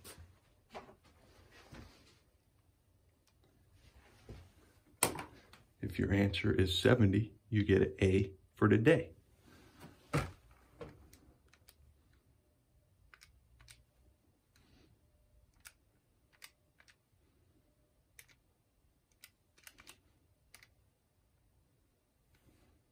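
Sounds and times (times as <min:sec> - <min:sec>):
calculator buttons clicking: 0:19.1 - 0:20.7.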